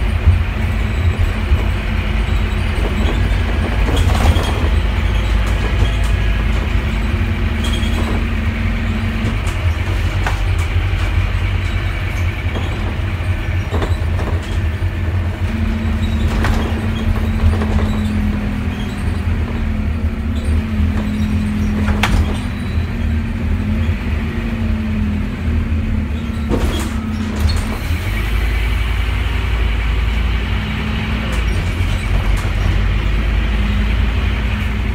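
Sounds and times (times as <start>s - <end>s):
bodywork rattles: 0.0s - 23.1s
bus engine and road rumble: 0.0s - 34.9s.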